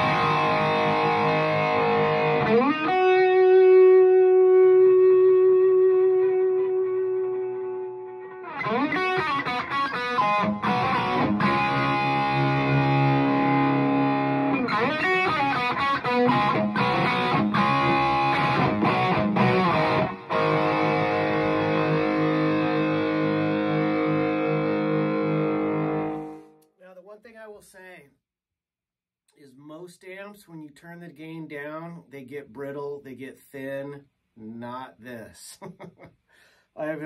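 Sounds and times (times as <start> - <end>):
overdriven electric guitar: 0.0 - 26.6.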